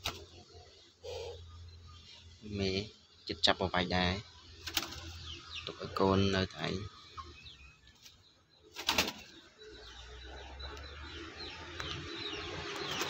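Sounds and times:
dove flapping wings: 0.0s - 0.3s, 4.6s - 5.1s, 8.8s - 9.3s
small birds chirping: 0.0s - 13.0s.

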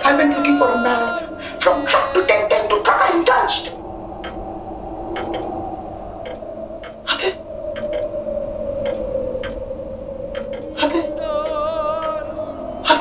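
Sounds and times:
sustained drone tone: 0.0s - 13.0s
faint clicks: 3.7s - 13.0s.

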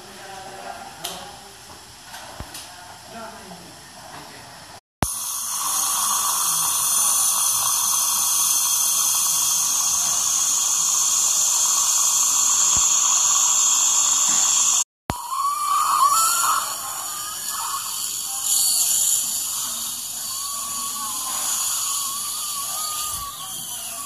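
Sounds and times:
dental drill whining: 5.0s - 24.0s.

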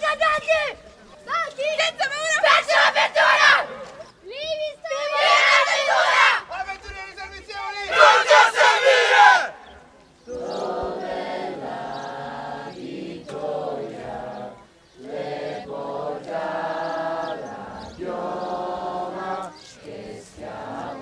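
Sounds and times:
young voices singing together: 2.0s - 6.5s, 7.9s - 21.0s
shouted group cry: 2.2s - 3.9s, 4.8s - 6.6s, 7.6s - 9.7s.

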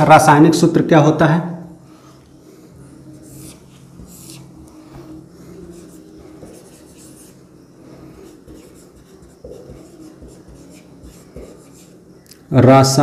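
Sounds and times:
steady low hum: 0.0s - 13.0s
marker writing on whiteboard: 3.0s - 12.2s.

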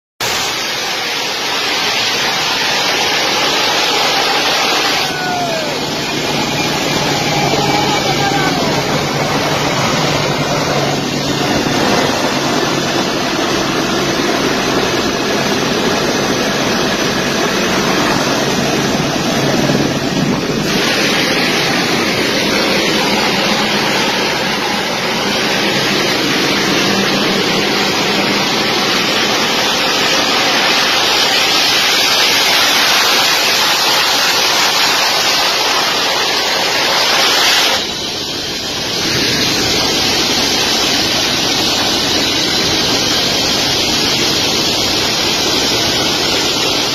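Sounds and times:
jet engines roaring: 0.2s - 46.9s
wind buffeting microphone: 5.5s - 30.1s.

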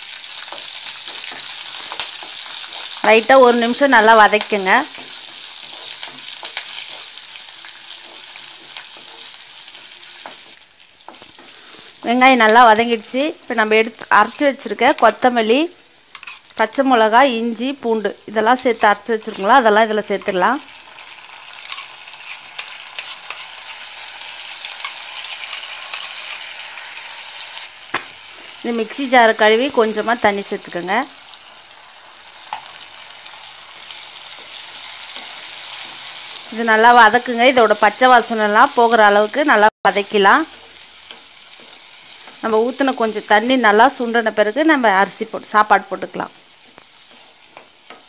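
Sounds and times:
oil crackles: 0.0s - 12.8s, 31.3s - 39.6s
onions sizzling in hot oil: 0.0s - 48.0s
spatula scraping and tapping pan: 4.3s - 12.8s, 16.1s - 16.6s, 21.5s - 24.0s, 40.4s - 44.0s, 46.6s - 48.0s.

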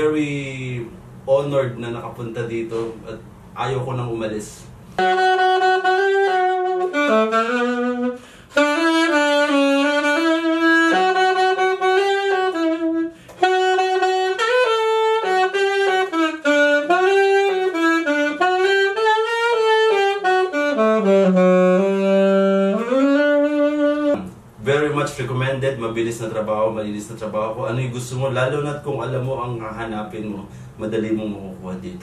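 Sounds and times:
alto saxophone melody: 4.9s - 24.3s.

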